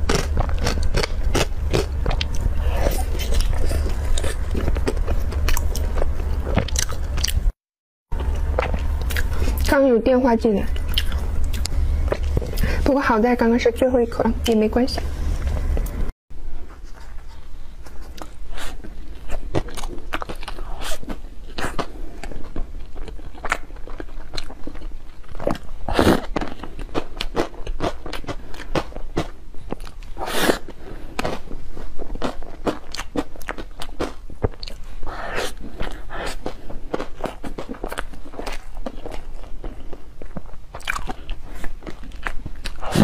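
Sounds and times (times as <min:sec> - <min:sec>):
biting and chewing soft buns: 0:00.0 - 0:09.8, 0:10.7 - 0:12.8, 0:16.6 - 0:43.0.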